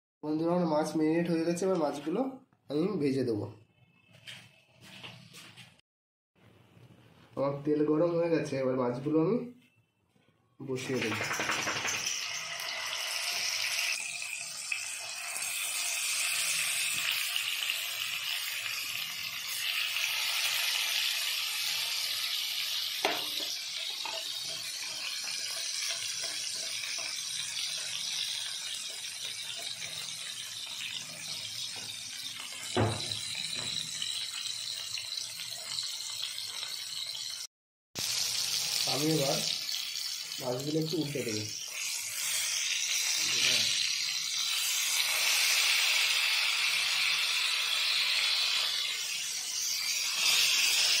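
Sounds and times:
fish sizzling in oil: 10.7 - 51.0.

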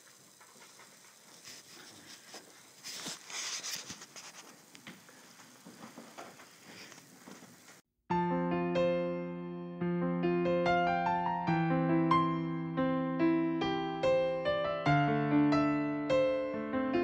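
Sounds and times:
crackly hiss: 0.0 - 7.9
soft piano music: 8.1 - 17.0.

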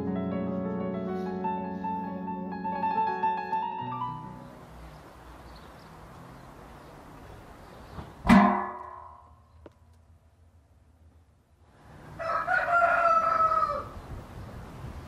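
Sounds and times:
background piano music: 0.0 - 5.4
loud ringing hit: 8.3 - 9.4.

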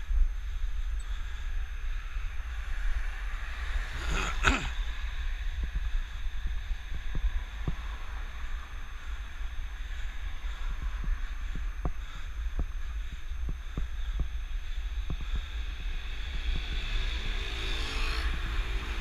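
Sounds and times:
wind rumbling on microphone: 0.0 - 19.0
car passing by: 16.3 - 19.0.

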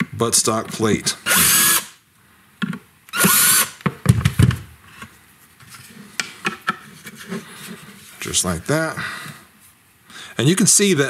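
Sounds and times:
cordless drill whining: 1.2 - 1.9, 3.1 - 3.8.

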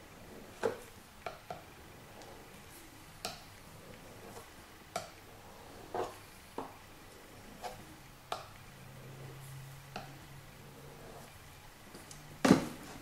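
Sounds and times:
faint scraping: 1.8 - 8.0, 10.6 - 11.5.

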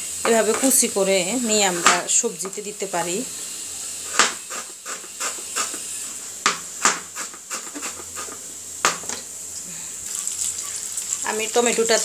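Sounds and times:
onions frying hiss: 0.0 - 12.0
knife chopping on cutting board: 4.1 - 5.8, 6.4 - 9.1.

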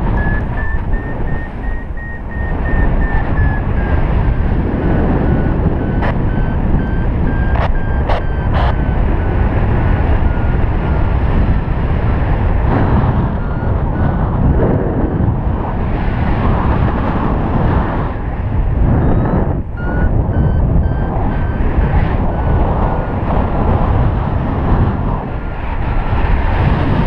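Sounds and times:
variometer short beeps: 0.0 - 11.0, 13.1 - 14.3, 19.0 - 22.6
wind rush on microphone: 0.0 - 27.0
sharp clicks: 0.1 - 3.2, 5.9 - 9.0.

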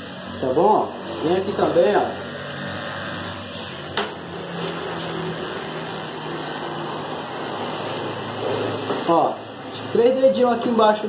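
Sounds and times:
electric dog clipper running: 0.0 - 11.0.

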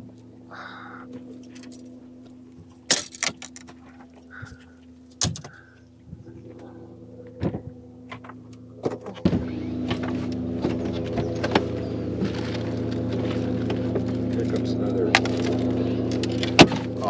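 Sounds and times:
knocks and metallic clinks: 1.4 - 3.8
electric motor humming: 3.5 - 17.0.

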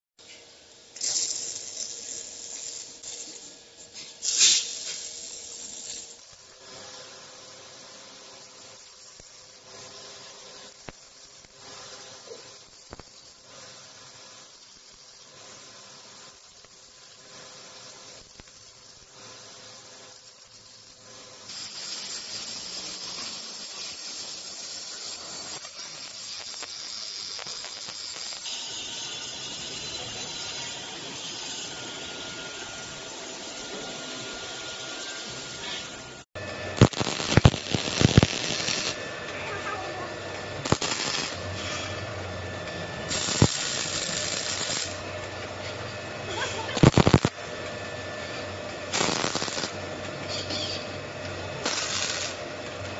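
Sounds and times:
welding arc hiss: 0.2 - 52.9
welding arc crackling: 0.3 - 52.9
welding arc burst: 0.9 - 50.9, 51.5 - 52.6.

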